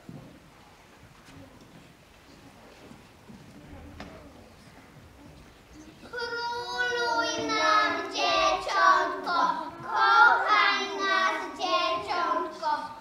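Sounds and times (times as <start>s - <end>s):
young children singing a carol: 5.8s - 13.0s.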